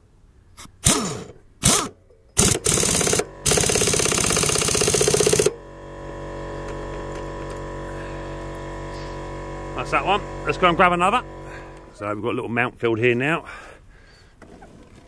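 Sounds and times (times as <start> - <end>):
air impact wrench hammering: 0.8 - 12.0
air compressor motor hum: 0.8 - 12.1
air motor blips: 0.9 - 12.0.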